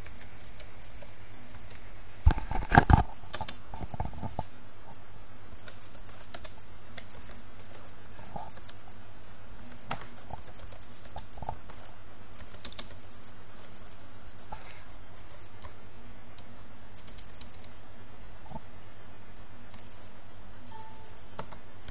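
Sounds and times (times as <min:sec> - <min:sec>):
keyboard keys clicking: 0:00.0 - 0:01.8, 0:02.8 - 0:03.7, 0:05.5 - 0:08.8, 0:09.6 - 0:11.8, 0:12.4 - 0:13.4, 0:16.4 - 0:17.8, 0:19.7 - 0:20.0, 0:20.7 - 0:21.9
steady low hum: 0:00.0 - 0:21.9.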